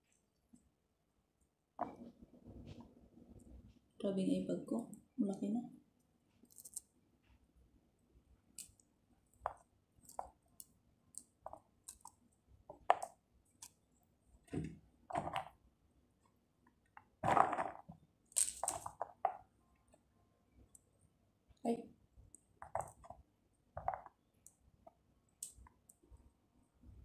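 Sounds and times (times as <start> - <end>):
pomegranate seeds crackling: 17.2 - 19.3.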